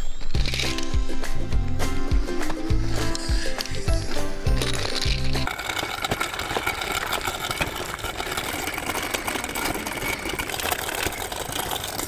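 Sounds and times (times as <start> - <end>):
electric motor and gearbox whining: 2.4 - 12.0
small stones crackling under tyres: 4.6 - 12.0.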